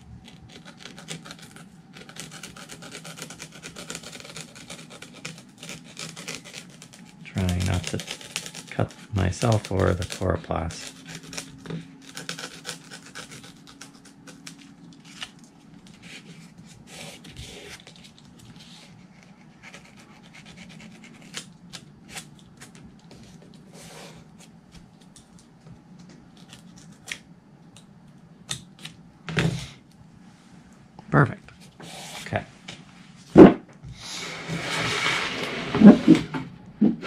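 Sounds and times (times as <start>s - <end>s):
plastic rustling: 0.0s - 18.7s.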